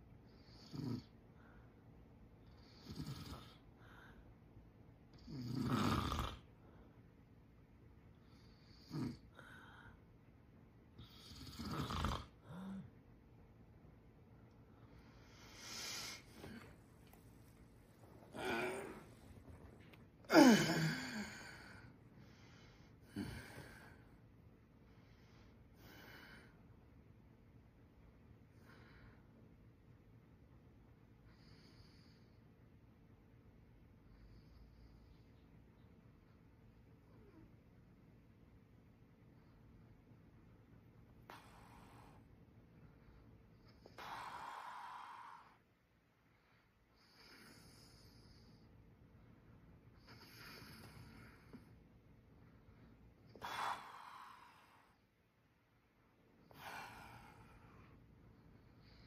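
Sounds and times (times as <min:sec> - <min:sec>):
man snorting in sleep: 0:00.3 - 0:01.2, 0:02.5 - 0:03.7, 0:05.1 - 0:06.5, 0:08.3 - 0:09.7, 0:11.0 - 0:12.9, 0:18.0 - 0:19.4, 0:20.3 - 0:24.1, 0:47.0 - 0:48.6, 0:50.0 - 0:51.7
man breathing with light snore: 0:14.8 - 0:24.2.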